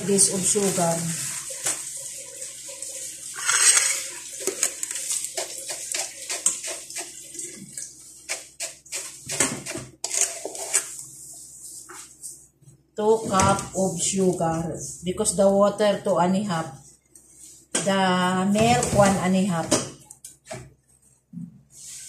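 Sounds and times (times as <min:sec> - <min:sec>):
sugar pouring: 0:03.3 - 0:09.2.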